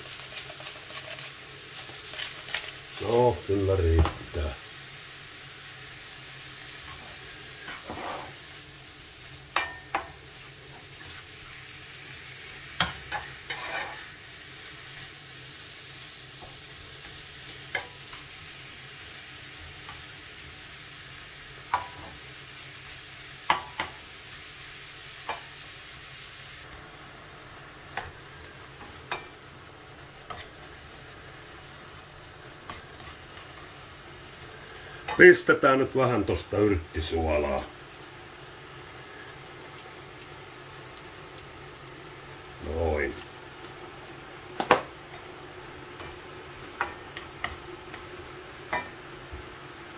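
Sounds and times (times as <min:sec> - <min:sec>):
spatula scraping a pan: 0:00.0 - 0:03.0, 0:06.8 - 0:08.6, 0:12.8 - 0:15.1
meat and onion sizzling in a pan: 0:00.0 - 0:49.9.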